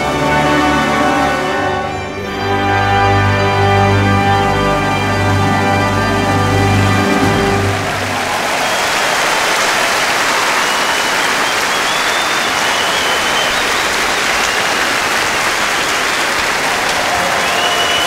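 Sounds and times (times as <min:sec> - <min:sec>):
large audience applauding: 0:05.7 - 0:18.0
faint whistles: 0:10.5 - 0:14.8, 0:17.3 - 0:18.0.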